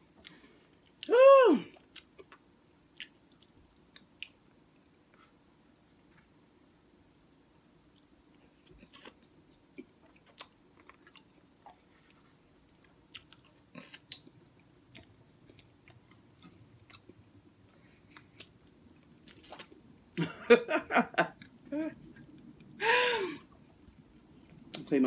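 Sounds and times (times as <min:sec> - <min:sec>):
faint chewing mouth clicks: 0:01.8 - 0:04.4.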